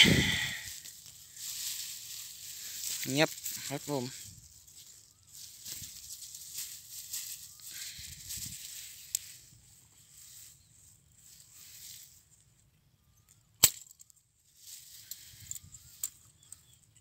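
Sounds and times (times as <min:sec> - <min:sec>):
soft rustling: 0:00.6 - 0:12.4
rat trap metallic snap: 0:13.6 - 0:14.1.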